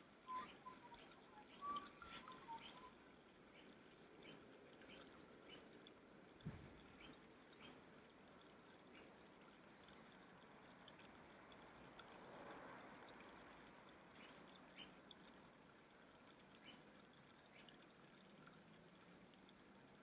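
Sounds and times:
small birds chirping: 0.3 - 5.8, 16.6 - 16.9.

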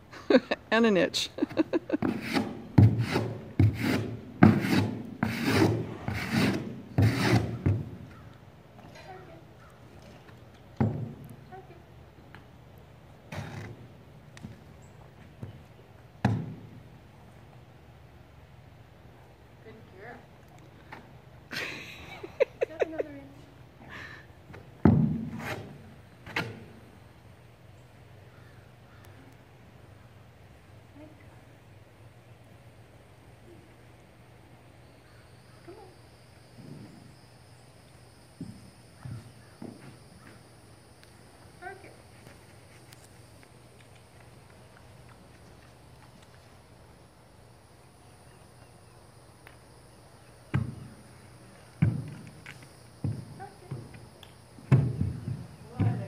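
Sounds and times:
horse rubbing muzzle on board: 2.0 - 7.9, 25.2 - 26.6
hoof knocking on plastic pallet: 54.7 - 56.0.

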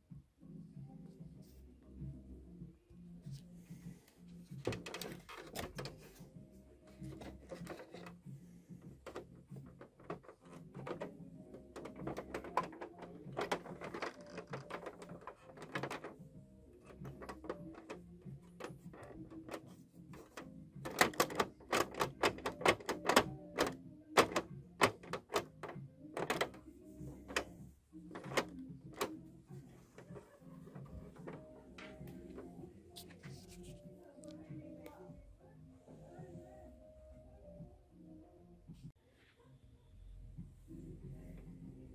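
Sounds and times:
plastic toy car clicking: 4.7 - 6.1, 9.0 - 16.2, 16.8 - 26.6, 27.2 - 27.5, 28.1 - 29.2.

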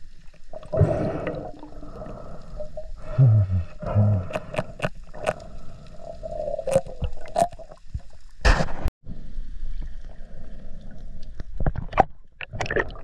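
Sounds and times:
steady underwater hum: 0.0 - 8.4, 9.1 - 11.7
underwater clicks and knocks: 11.4 - 13.0.

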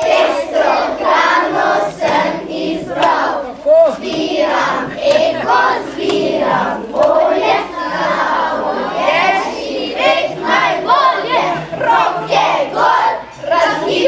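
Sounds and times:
children singing: 0.0 - 14.0.

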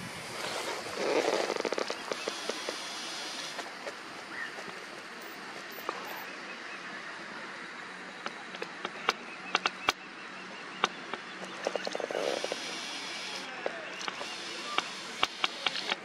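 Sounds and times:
steady outdoor hiss: 0.0 - 16.0
sharp clicks and ticks: 8.2 - 10.0, 10.8 - 16.0.

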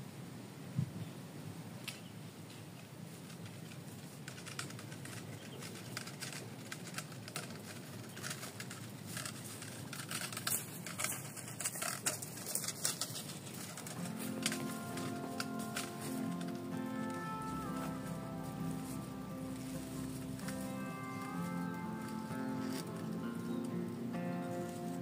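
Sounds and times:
footsteps through dry grass: 12.4 - 25.0.

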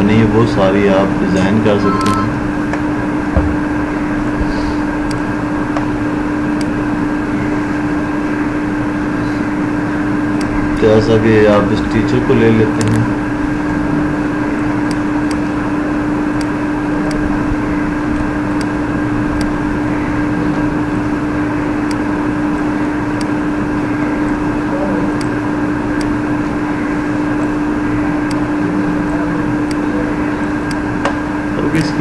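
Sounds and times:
steady mechanical hum: 0.0 - 32.0.

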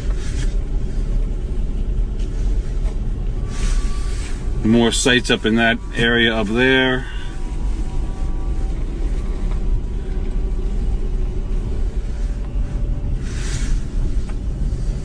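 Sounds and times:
car engine and road noise: 0.0 - 15.0.

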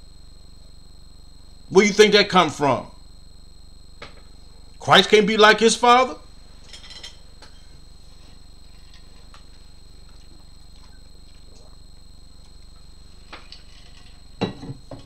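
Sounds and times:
low electrical hum: 0.0 - 15.0
cup clicks and knocks: 14.4 - 15.0.

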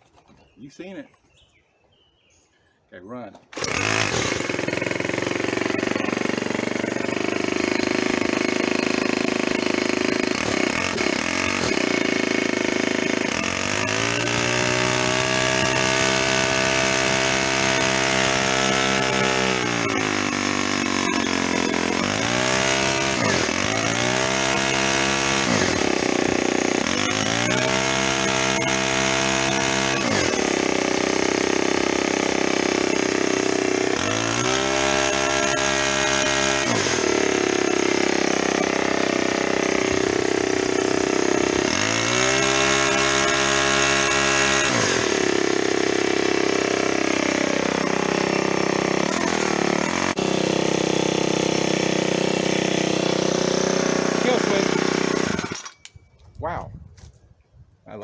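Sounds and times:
string trimmer engine revving: 3.4 - 55.9.

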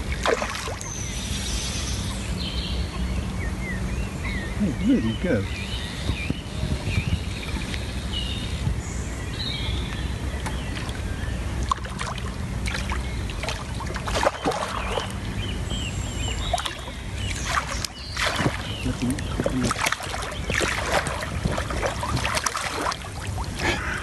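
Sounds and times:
small water splashes: 0.0 - 1.3, 9.9 - 24.0
birds chirping: 0.0 - 24.0
low rumble on water: 0.0 - 24.0.

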